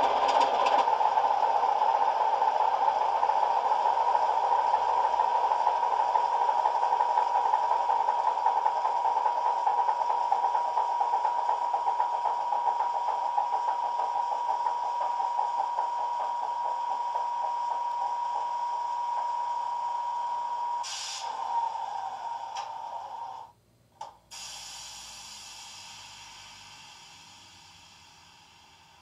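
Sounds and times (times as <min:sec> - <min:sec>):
air hiss: 0:20.8 - 0:23.5, 0:24.3 - 0:29.0
click: 0:24.0 - 0:24.2.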